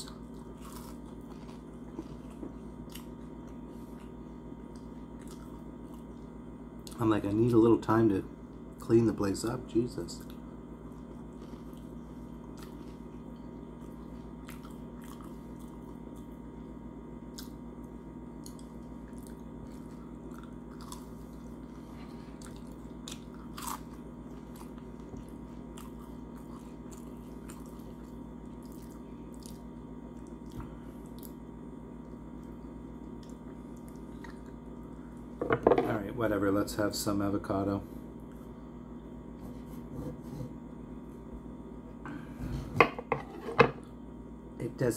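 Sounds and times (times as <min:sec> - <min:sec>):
person chewing food: 0:00.0 - 0:07.0, 0:10.2 - 0:16.5, 0:17.2 - 0:35.4
steady low hum: 0:00.0 - 0:44.9.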